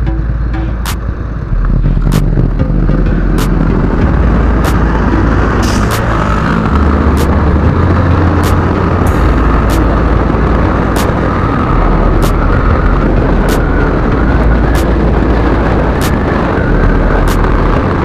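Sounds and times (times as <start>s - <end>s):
wind rumble on microphone: 0.0s - 18.0s
sharp clicks: 12.2s - 12.4s.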